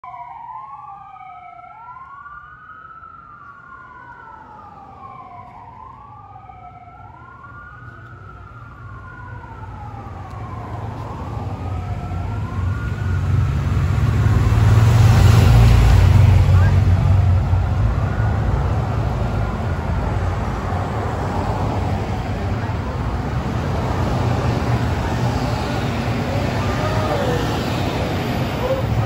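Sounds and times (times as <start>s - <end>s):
police sirens wailing: 0.0s - 29.0s
motorcycle engines: 7.2s - 29.0s.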